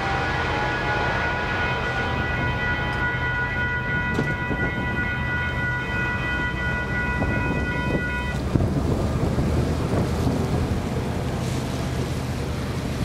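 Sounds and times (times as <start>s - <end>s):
distant locomotive horn: 0.0s - 8.8s
train rumble: 0.0s - 13.0s
wind on microphone: 4.0s - 5.3s, 6.8s - 11.4s.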